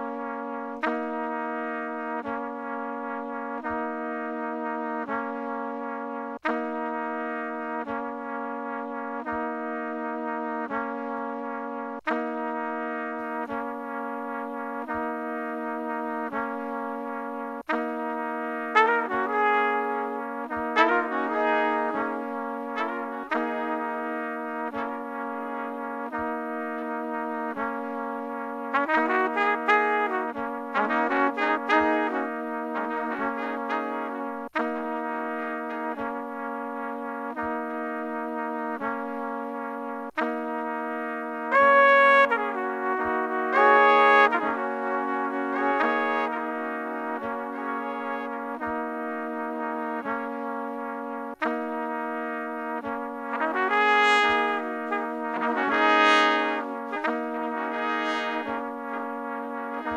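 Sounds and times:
slow instrumental chords: 5.8 - 59.9
steady low note: 8.9 - 59.9
sustained instrumental notes: 41.0 - 48.6.

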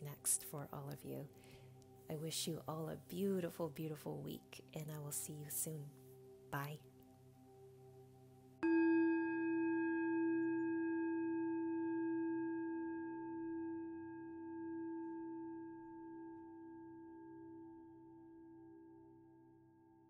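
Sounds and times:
singing bowl ringing: 6.2 - 19.8.

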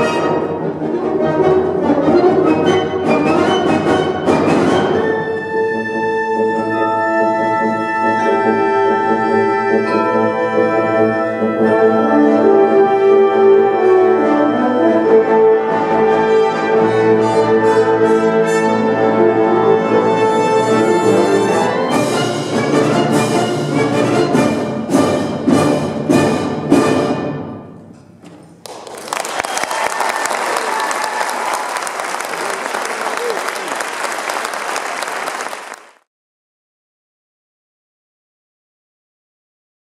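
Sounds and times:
wind ensemble playing: 0.0 - 27.6.

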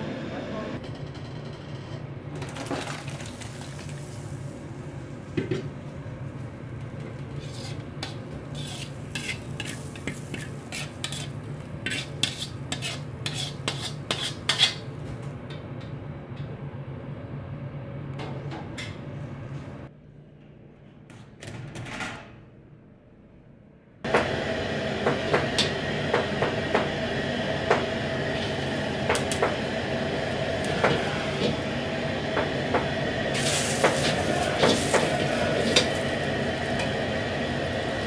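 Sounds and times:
low kitchen hum: 0.0 - 38.0
metal ladle scraping a wok: 7.3 - 14.8.

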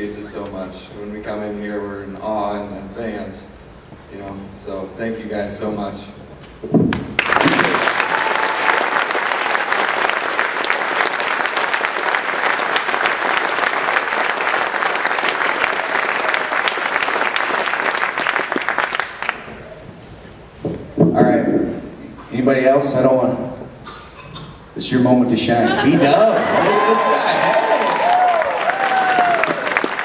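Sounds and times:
crowd applauding: 7.0 - 19.5, 26.2 - 30.0.

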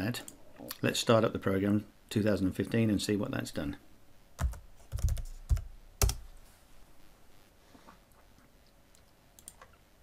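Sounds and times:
computer keyboard keystrokes: 4.4 - 6.2.

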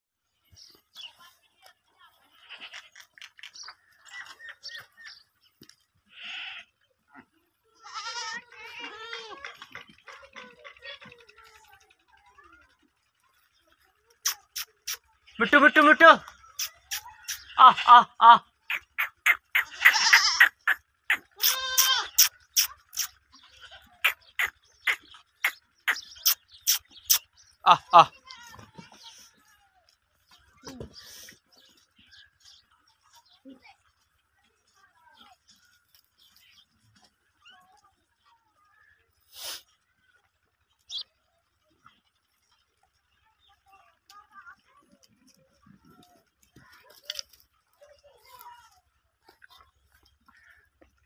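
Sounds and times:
goats eating from metal bowls: 0.3 - 17.6, 18.5 - 51.0
goat bleating: 2.3 - 3.1, 6.1 - 6.7, 7.7 - 9.8, 14.3 - 29.4.

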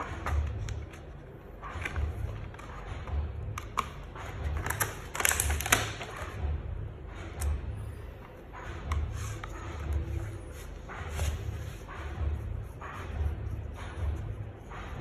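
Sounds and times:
paper packaging rustling: 4.6 - 6.4.

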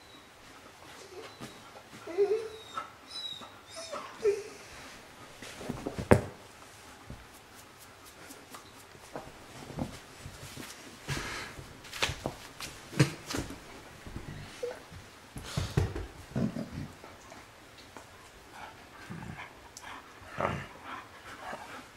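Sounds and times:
dogs whining: 1.0 - 4.7.

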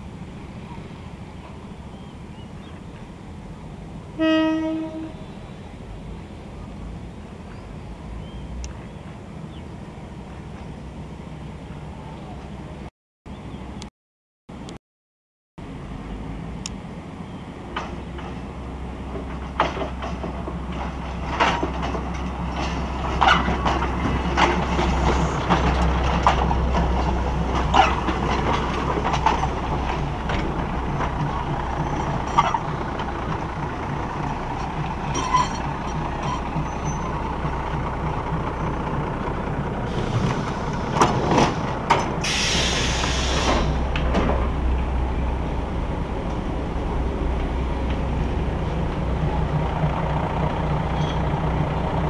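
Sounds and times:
train engine rumble: 0.0 - 12.9, 15.6 - 52.0
train horn blast: 4.2 - 5.4
low rumble: 43.4 - 52.0.

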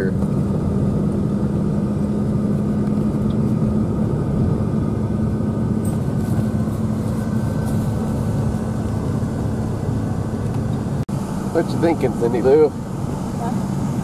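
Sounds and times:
vehicle engine and tyre rumble: 0.0 - 14.0.

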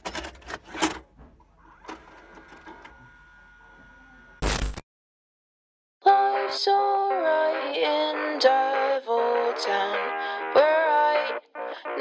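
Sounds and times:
faint mechanical whir: 0.3 - 4.4
burst of static: 4.4 - 4.8.

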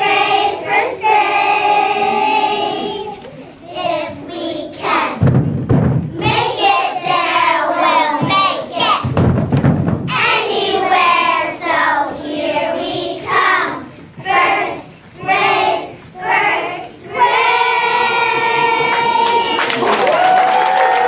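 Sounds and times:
young children singing: 0.0 - 5.4, 6.2 - 9.2, 10.1 - 19.8
people clapping: 18.7 - 21.0.

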